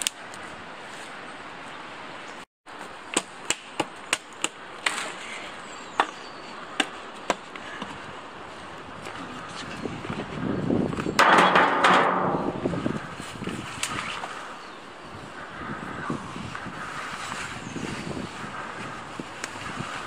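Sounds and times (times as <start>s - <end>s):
hatchet chopping branch: 3.1s - 5.1s.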